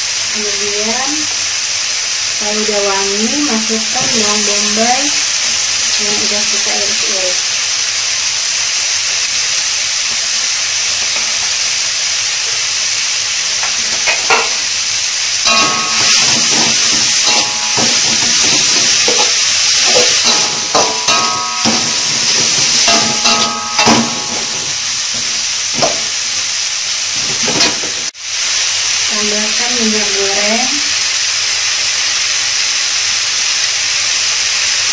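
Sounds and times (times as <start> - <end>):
onion and paste sizzling in a wok: 0.0 - 34.9
metal spatula scraping a wok: 15.4 - 26.0.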